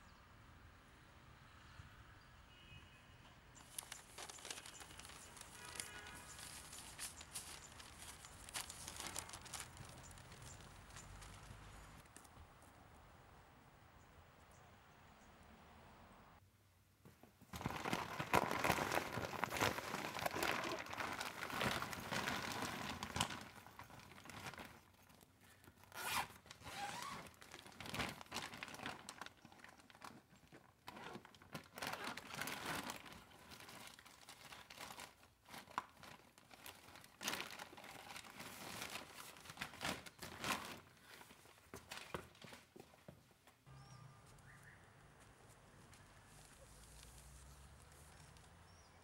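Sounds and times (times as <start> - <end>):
plastic bag crinkling: 3.6 - 12.2, 17.5 - 42.5.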